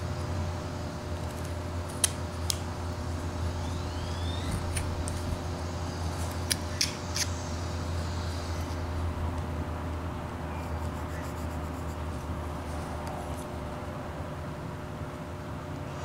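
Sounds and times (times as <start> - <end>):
steady low hum: 0.0 - 16.0
sharp clicks of chips snapping: 1.2 - 2.7.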